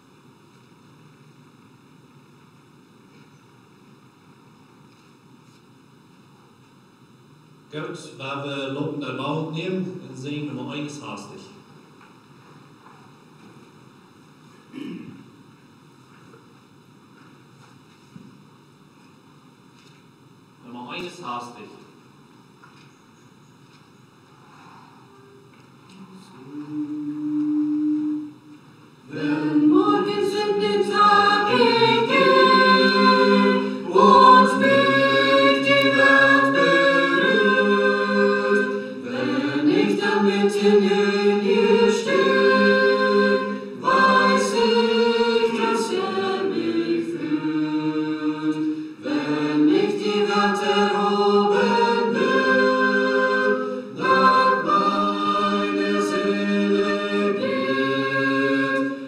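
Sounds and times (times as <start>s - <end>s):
choir singing a hymn a cappella: 25.9s - 59.0s.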